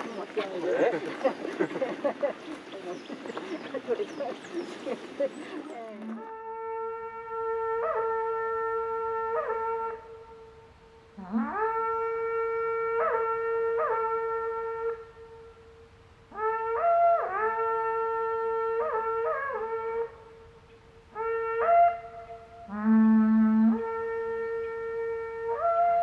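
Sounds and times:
conch-shell trumpet blasts: 6.2s - 10.6s, 21.1s - 26.0s.

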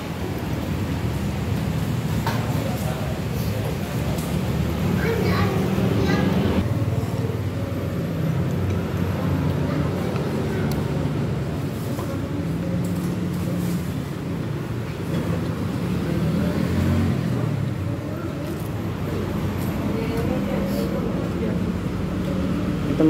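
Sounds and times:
road traffic rumble: 0.0s - 23.0s
vehicles passing: 0.0s - 23.0s.

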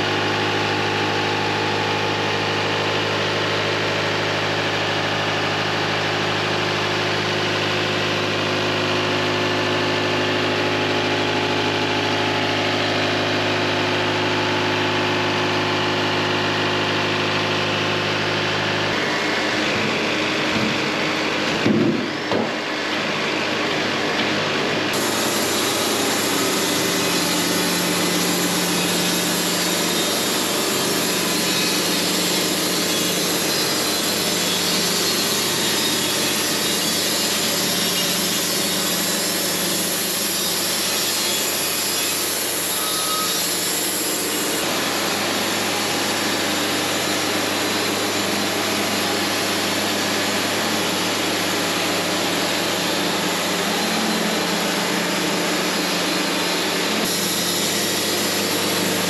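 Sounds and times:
band sawmill sawing a log: 24.9s - 59.0s.

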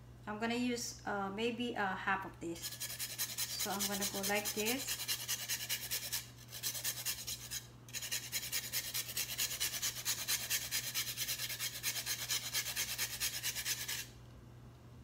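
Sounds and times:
ginger grated on metal grater: 2.6s - 14.1s.

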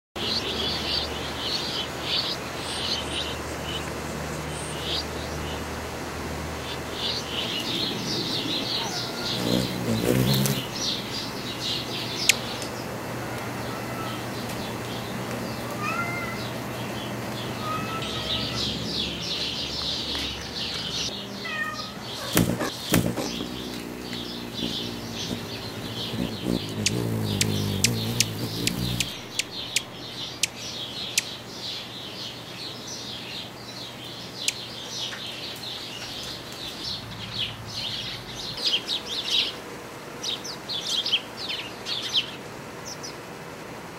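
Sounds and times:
birds chirping: 0.2s - 43.2s
cat meowing: 7.7s - 9.5s, 13.3s - 14.2s, 15.6s - 16.5s, 17.6s - 18.9s, 21.4s - 25.2s
whistled bird calls: 24.1s - 29.9s.

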